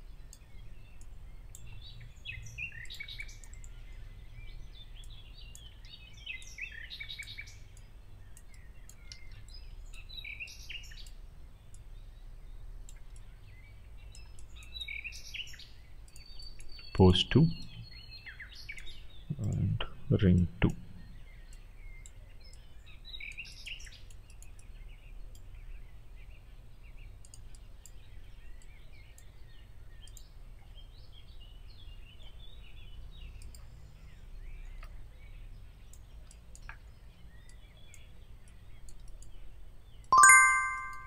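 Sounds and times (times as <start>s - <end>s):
faint bird chirps: 0.0s - 41.0s
faint clicks: 2.8s - 4.0s, 7.2s - 10.0s, 23.3s - 24.7s, 27.2s - 28.0s, 30.0s - 30.3s, 33.4s - 35.0s, 35.8s - 39.4s
bell-like chime: 40.2s - 41.0s.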